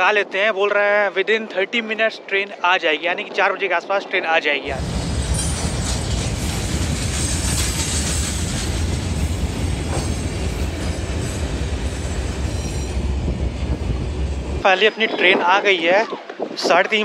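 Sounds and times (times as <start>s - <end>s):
train wagons rumbling on rails: 4.7s - 14.7s.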